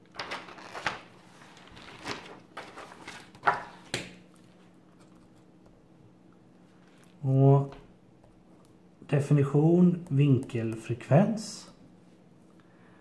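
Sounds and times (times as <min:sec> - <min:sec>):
paper page flipping: 0:00.1 - 0:04.1.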